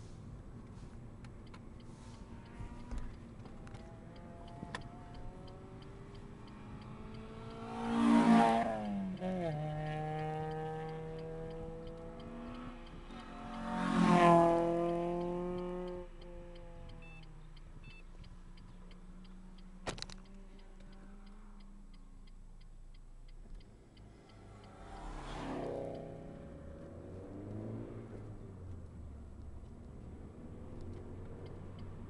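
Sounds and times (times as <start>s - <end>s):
engine hum: 0.0s - 32.0s
light regular ticking: 0.1s - 32.0s
car passing at speed: 1.9s - 17.0s, 24.0s - 32.0s.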